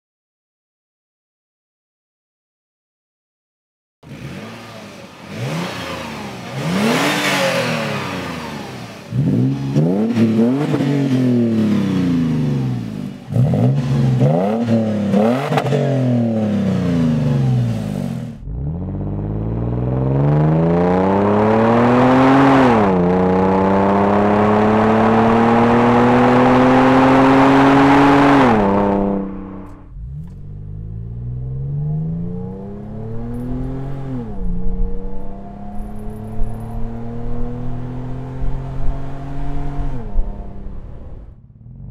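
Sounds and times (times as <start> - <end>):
car accelerating and shifting gears: 4.0 - 41.9
car engine revving: 4.0 - 41.9
engine heard inside cabin: 25.4 - 34.4.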